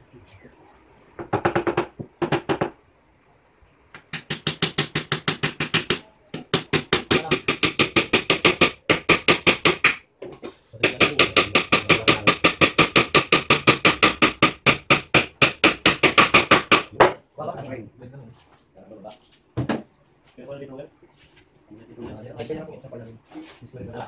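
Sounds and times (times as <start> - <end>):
hammer driving nails into wood: 4.0 - 10.0, 10.8 - 17.1.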